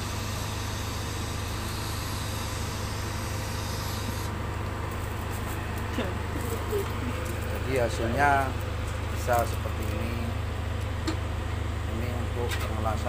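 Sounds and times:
welding arc hissing: 0:00.0 - 0:07.7
constant low hum: 0:00.0 - 0:13.0.

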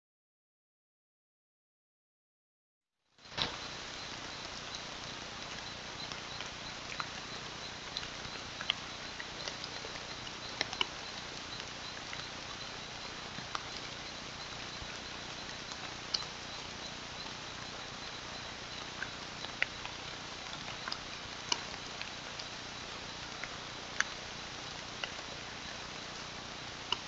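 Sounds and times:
steady hiss: 0:03.2 - 0:27.0
high insect chirp: 0:03.3 - 0:23.5.

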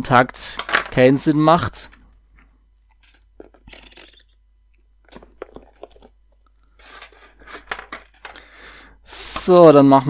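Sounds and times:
cable clicking and rustling: 0:05.0 - 0:08.4.

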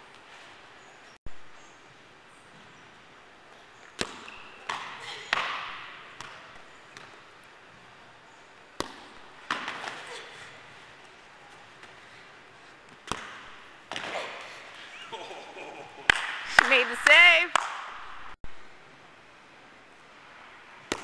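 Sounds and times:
ball hitting gloves and floor: 0:03.8 - 0:07.3, 0:08.8 - 0:10.2, 0:12.9 - 0:14.5.

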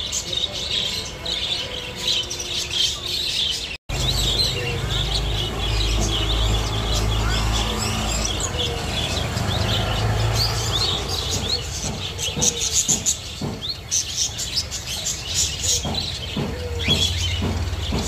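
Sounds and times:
finches chirping: 0:00.0 - 0:18.0
soft low knocks: 0:15.8 - 0:18.0.

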